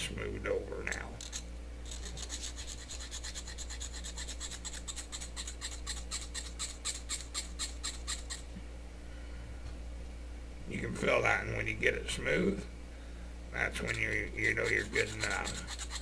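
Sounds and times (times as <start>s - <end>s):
needle file rasping on metal: 1.2s - 8.4s, 13.8s - 16.0s.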